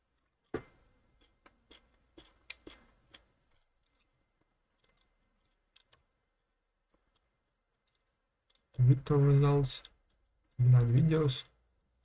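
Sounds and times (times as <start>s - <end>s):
computer mouse clicks: 6.8s - 11.5s.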